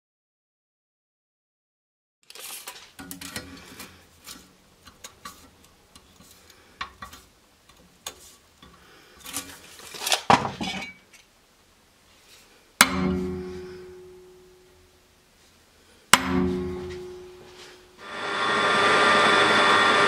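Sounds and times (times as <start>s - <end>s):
metal scrape: 2.3s - 7.3s.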